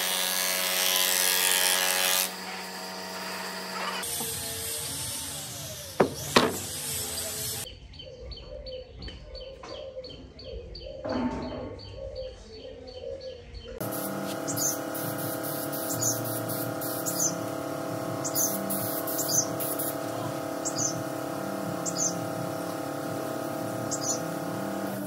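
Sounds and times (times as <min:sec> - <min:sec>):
woodworking machine motor hum: 0:00.0 - 0:04.4, 0:13.8 - 0:25.0
wooden boards knocking on bench: 0:06.0 - 0:06.6.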